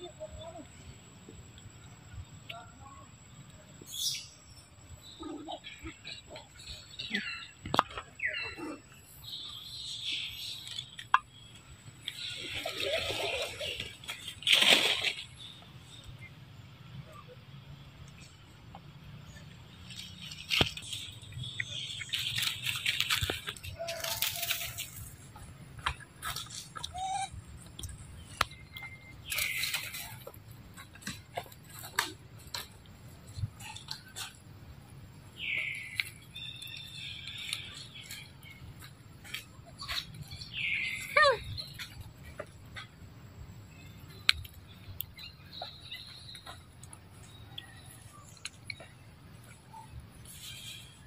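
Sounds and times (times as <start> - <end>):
rustling and scuffling: 22.1 - 28.1
monkey squeaky call: 26.4 - 27.6.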